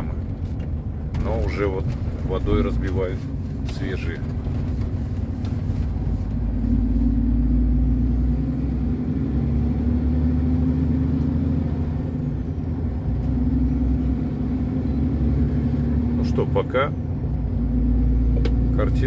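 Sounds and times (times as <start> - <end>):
road noise: 0.0 - 19.0
truck engine drone: 0.0 - 19.0.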